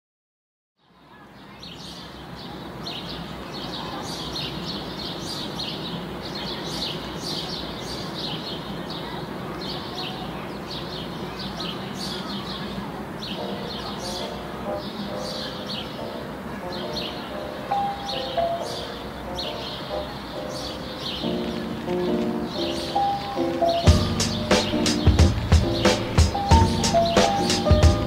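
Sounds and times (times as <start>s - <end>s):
small birds chirping: 0.8s - 28.0s
sustained musical notes: 16.0s - 28.0s.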